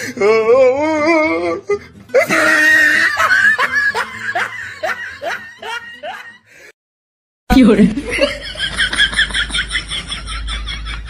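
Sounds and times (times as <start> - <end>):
person laughing: 2.2 - 6.5, 8.0 - 11.0.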